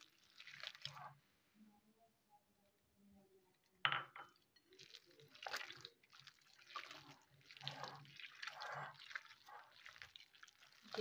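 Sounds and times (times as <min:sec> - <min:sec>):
wet squelching of kneaded meat: 0:00.0 - 0:01.2, 0:04.8 - 0:11.0.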